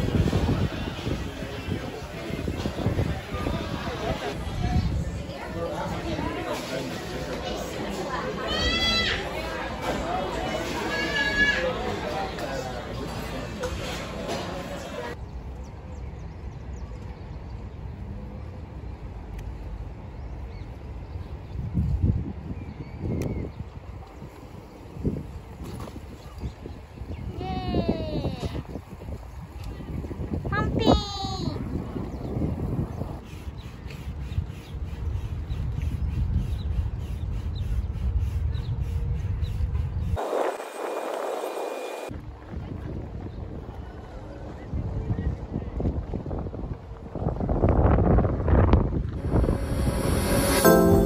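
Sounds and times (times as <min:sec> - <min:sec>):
wind on microphone: 0:00.0 - 0:06.3, 0:21.0 - 0:50.7
low rumble: 0:48.7 - 0:51.0.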